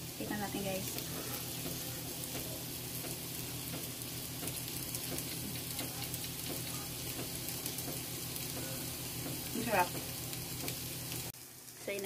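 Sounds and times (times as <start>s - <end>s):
vegetables sizzling in a pan: 0.0s - 12.0s.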